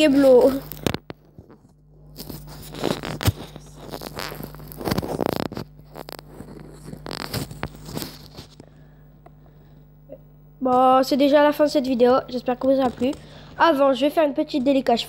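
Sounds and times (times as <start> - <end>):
faint steady hum: 0.0 - 15.0
scraping rustling noises: 0.1 - 8.6.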